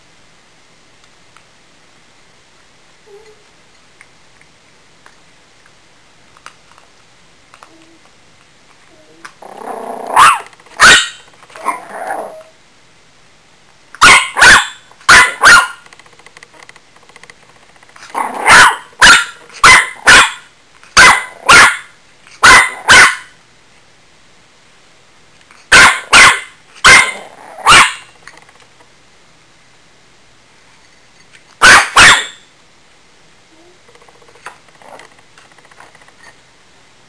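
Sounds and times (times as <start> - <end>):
puppy growling: 9.4 - 10.5, 11.6 - 12.5, 27.0 - 27.7, 34.8 - 35.1
puppy barking: 10.1 - 12.4, 14.0 - 15.8, 18.2 - 23.3, 25.7 - 28.1, 31.6 - 32.4.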